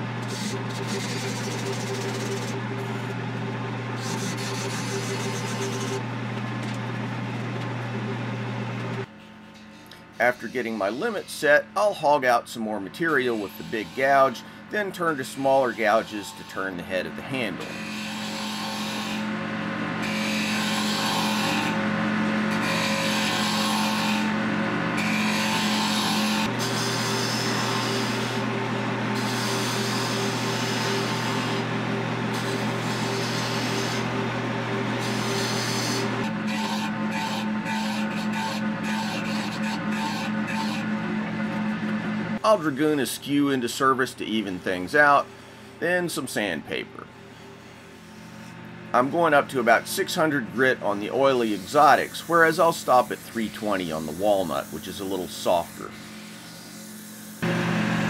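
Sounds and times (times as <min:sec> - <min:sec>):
wood lathe motor hum: 0:00.0 - 0:11.5, 0:12.9 - 0:43.6, 0:46.8 - 0:58.0
turning tool scraping wood: 0:00.2 - 0:03.3, 0:04.0 - 0:07.6, 0:09.0 - 0:11.9, 0:12.9 - 0:19.3, 0:20.0 - 0:21.8, 0:22.5 - 0:24.3, 0:25.0 - 0:28.4, 0:35.0 - 0:43.6, 0:47.3 - 0:57.5.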